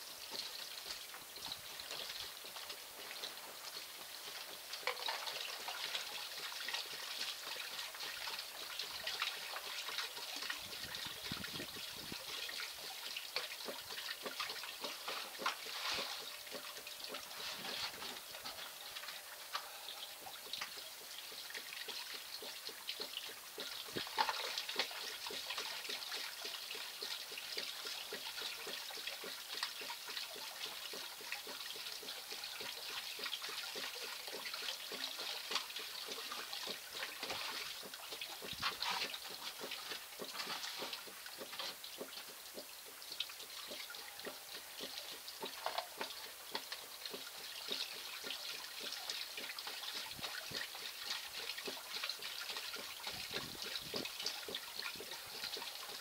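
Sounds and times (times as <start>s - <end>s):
water trickling through gravel: 0.0s - 56.0s.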